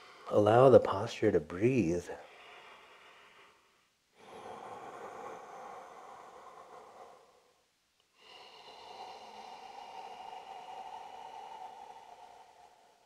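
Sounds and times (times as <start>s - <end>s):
person breathing slowly: 0.0s - 0.4s, 2.1s - 13.0s.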